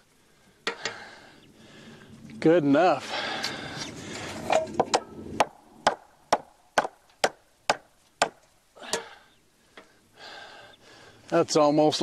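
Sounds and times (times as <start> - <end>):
hammer striking wood: 4.6 - 9.0.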